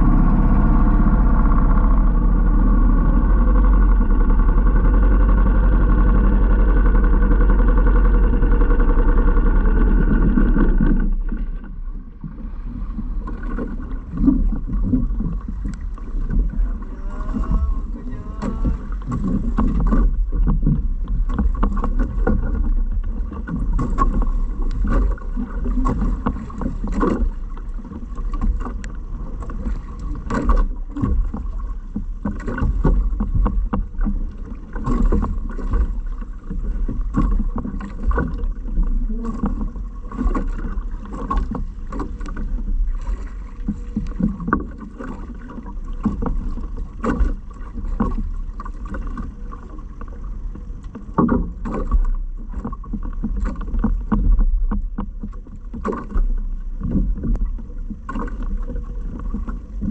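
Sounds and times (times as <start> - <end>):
water sloshing and splashing: 0.0 - 59.9
wind rumble on microphone: 0.0 - 59.9
knocks on boat: 13.1 - 59.9.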